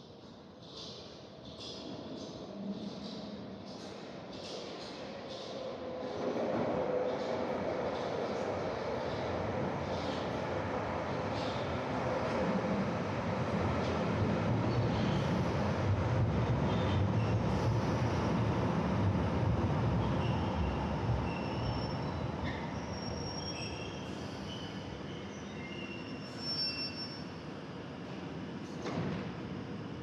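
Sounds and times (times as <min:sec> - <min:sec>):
train rumbling on rails: 0:01.5 - 0:26.4
high-pitched wheel squeals: 0:21.3 - 0:27.4.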